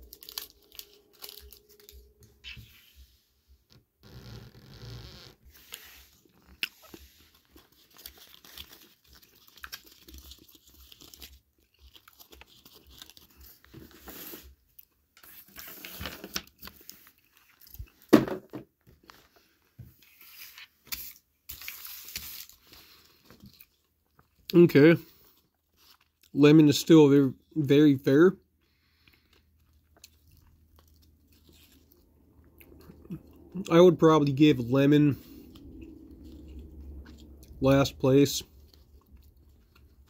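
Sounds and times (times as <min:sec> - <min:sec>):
foil wrapper crinkling: 0:00.0 - 0:02.7, 0:05.5 - 0:14.5.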